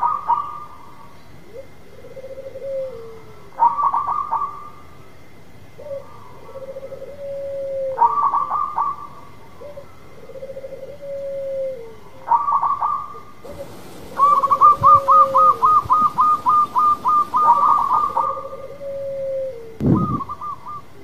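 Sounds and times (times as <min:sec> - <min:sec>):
dove cooing: 0:01.5 - 0:04.6, 0:05.8 - 0:09.0, 0:09.6 - 0:21.0.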